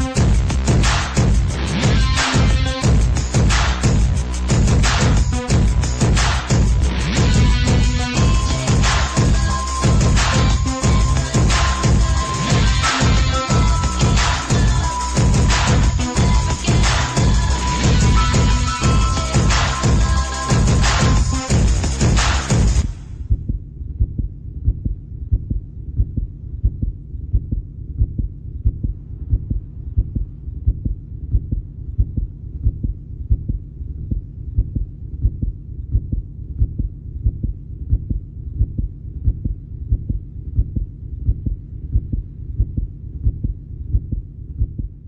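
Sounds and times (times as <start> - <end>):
music: 0.0 - 23.0
low thudding pulse: 0.0 - 45.0.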